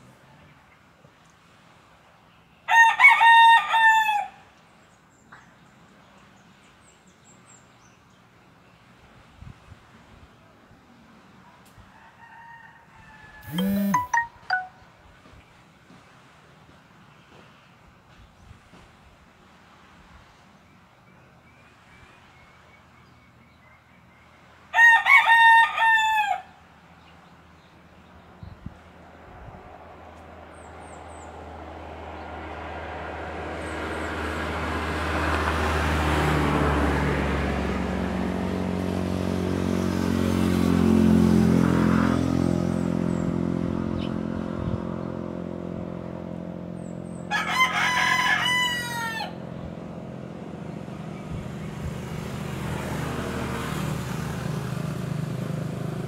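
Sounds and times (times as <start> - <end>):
rooster crowing: 2.7 - 4.4, 11.9 - 14.0, 24.7 - 26.5, 47.3 - 49.5
low engine drone: 13.4 - 14.8.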